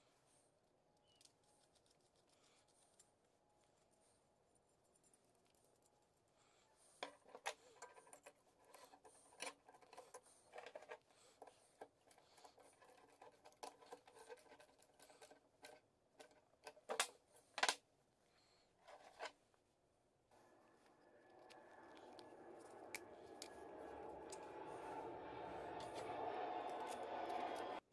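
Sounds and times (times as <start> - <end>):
small metal parts clicking and scraping: 7.0 - 17.8.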